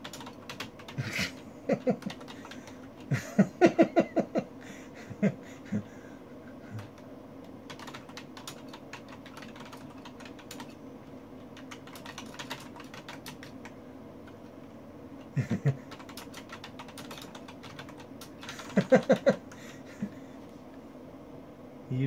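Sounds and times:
keyboard typing clicks: 0:00.0 - 0:01.0, 0:06.8 - 0:10.8, 0:11.6 - 0:14.4, 0:15.9 - 0:19.6
steady low hum: 0:00.0 - 0:22.0.

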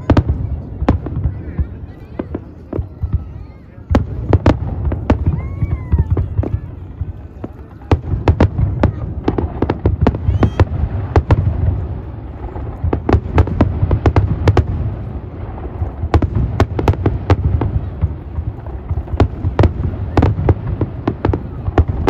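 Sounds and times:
fireworks bangs and crackles: 0:00.0 - 0:22.0.

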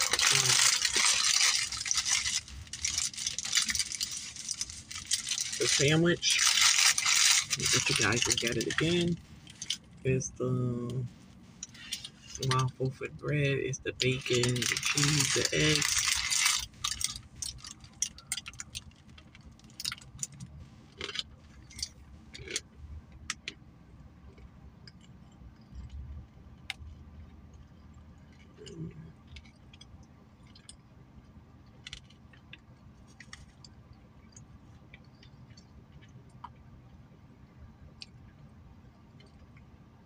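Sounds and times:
sandwich wrapper rustling: 0:00.0 - 0:10.0, 0:14.0 - 0:22.6
faint low hum: 0:00.0 - 0:40.0.

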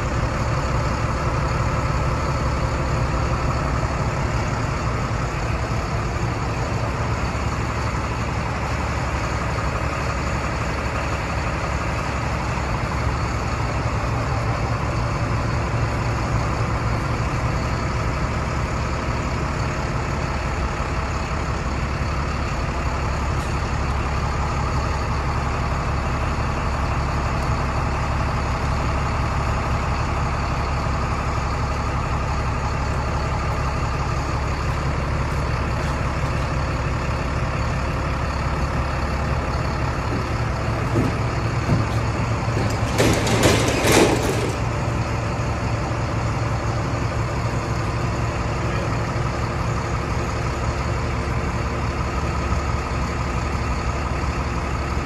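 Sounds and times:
diesel truck engine idling: 0:00.0 - 0:55.0.

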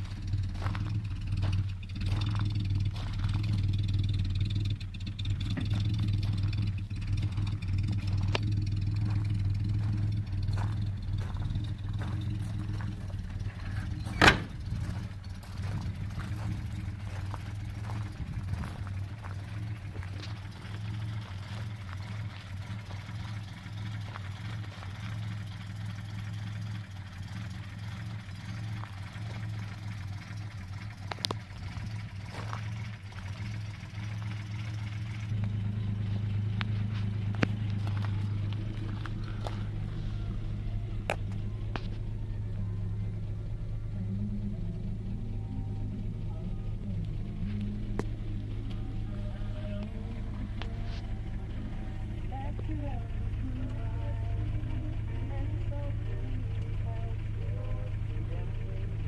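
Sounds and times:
car engine idling: 0:00.0 - 0:59.0
car door slamming: 0:14.1 - 0:14.6.

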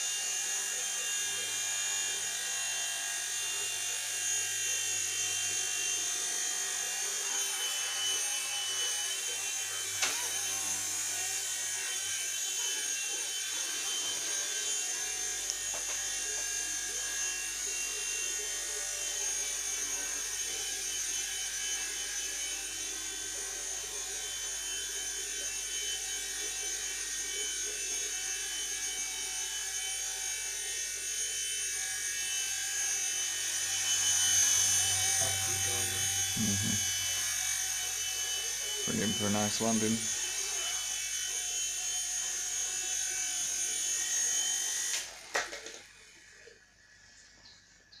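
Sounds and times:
rc helicopter motor whine: 0:00.0 - 0:48.0
rotors buzzing: 0:33.4 - 0:46.1.

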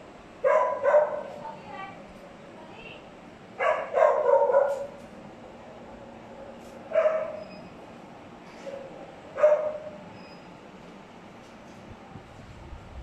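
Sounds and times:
young dog barking: 0:00.4 - 0:01.3, 0:03.6 - 0:05.0, 0:06.9 - 0:07.4, 0:09.4 - 0:10.0.

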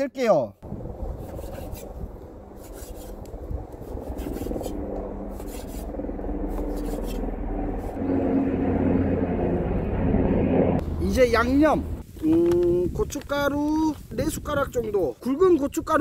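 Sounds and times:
low rumble: 0:03.2 - 0:12.9.

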